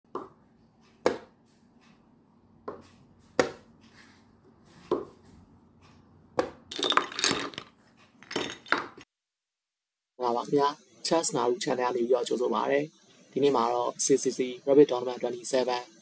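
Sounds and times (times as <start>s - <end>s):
sharp knocks: 1.0s - 1.3s, 2.6s - 3.7s.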